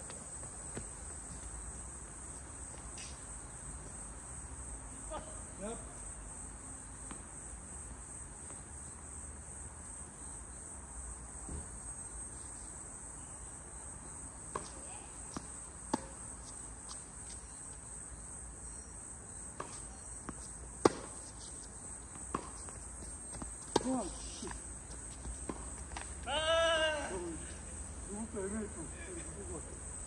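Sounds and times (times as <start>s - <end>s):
high-pitched insect chorus: 0.0s - 30.0s
tennis ball hits: 19.6s - 24.6s.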